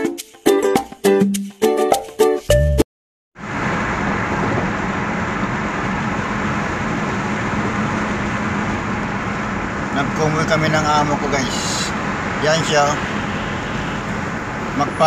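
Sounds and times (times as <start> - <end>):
plucked-string music: 0.0 - 2.8
car cabin road and engine noise: 3.4 - 15.0.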